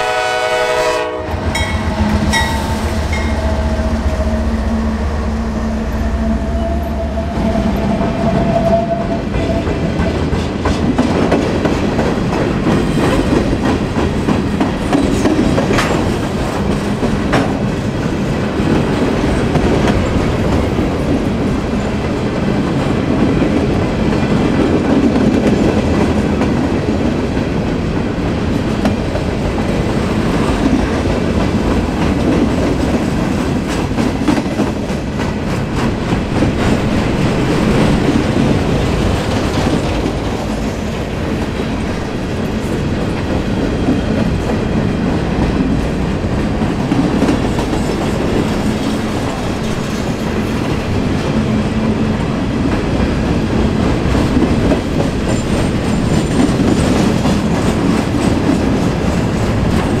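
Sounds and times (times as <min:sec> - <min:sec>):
train wheels rumbling on rail: 0:00.0 - 1:00.0
clickety-clack over rail joints: 0:07.7 - 1:00.0.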